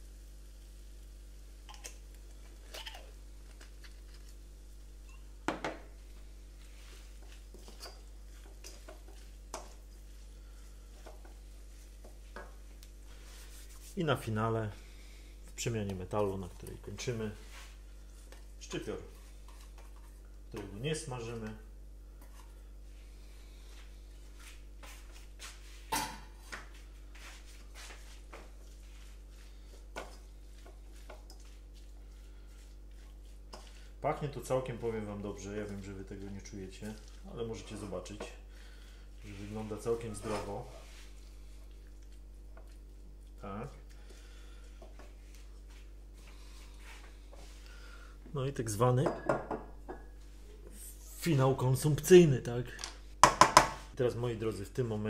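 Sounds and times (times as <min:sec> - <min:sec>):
faint steady hum: 0:00.0 - 0:55.0
spatula stirring noodles in a wok: 0:06.0 - 0:14.0, 0:16.3 - 0:20.8, 0:27.0 - 0:47.6.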